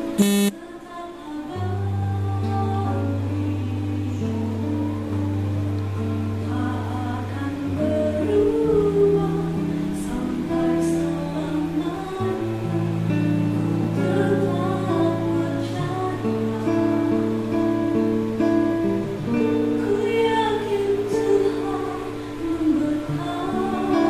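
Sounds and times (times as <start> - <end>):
instrumental accompaniment: 0.0 - 0.5
woman singing worship song: 0.0 - 18.0, 19.3 - 24.0.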